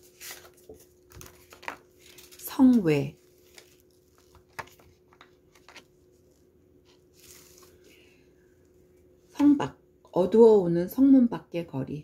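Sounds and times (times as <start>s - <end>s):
paper rustling: 0.0s - 8.0s
faint steady hum: 0.0s - 12.0s.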